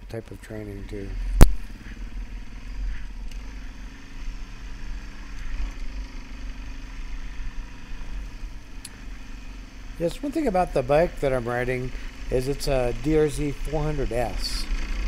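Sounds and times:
motorcycle engine running: 0:00.0 - 0:15.0
sharp click: 0:01.4 - 0:01.7.

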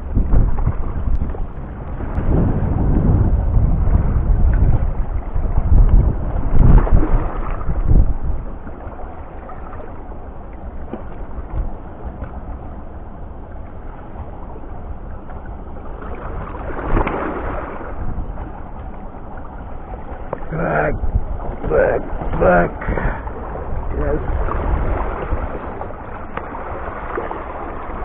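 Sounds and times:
wind and water wash: 0:00.0 - 0:28.0
wind buffeting microphone: 0:00.0 - 0:28.0
rush of noise: 0:20.2 - 0:25.8.

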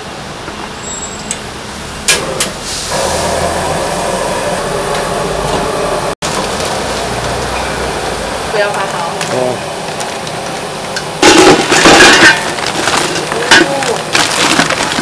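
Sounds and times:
gas flame hissing: 0:01.2 - 0:11.8.

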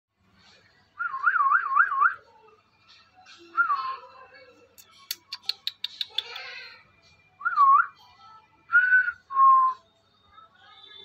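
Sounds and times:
parakeet clicks: 0:04.8 - 0:06.5.

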